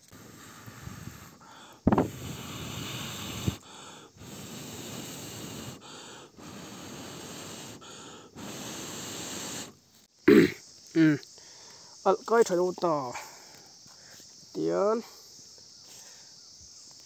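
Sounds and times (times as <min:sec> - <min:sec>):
quick in-breaths: 0:00.0 - 0:09.8, 0:11.3 - 0:12.0
person blowing on embers: 0:00.0 - 0:11.4.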